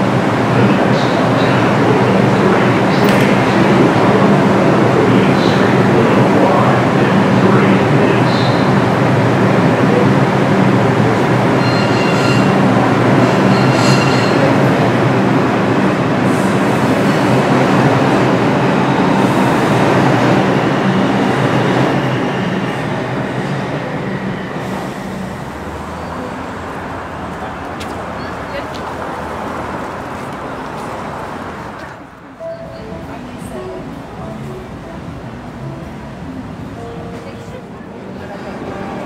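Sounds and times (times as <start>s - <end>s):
subway train wheels and motors: 0.0s - 39.0s
high wheel squeals: 11.5s - 14.6s.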